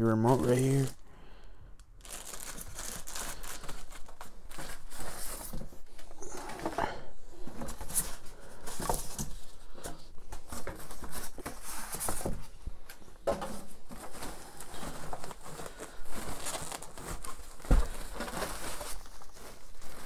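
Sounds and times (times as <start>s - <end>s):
plastic sheet crinkling: 2.0s - 6.8s, 13.4s - 20.0s.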